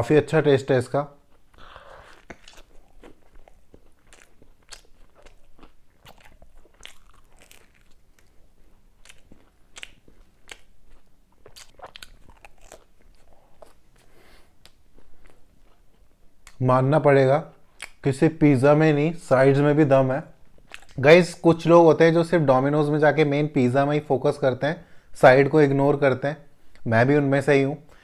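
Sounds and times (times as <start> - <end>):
biting and chewing: 1.4 - 16.6.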